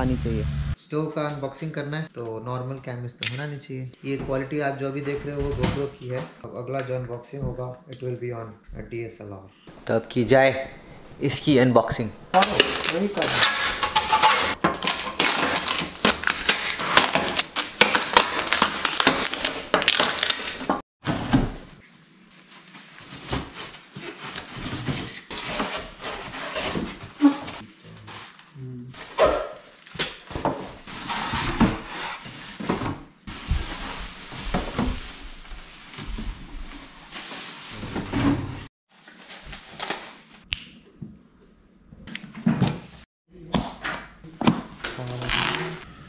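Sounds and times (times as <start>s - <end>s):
cardboard and plastic rustling: 12.4s - 13.8s, 14.5s - 40.4s.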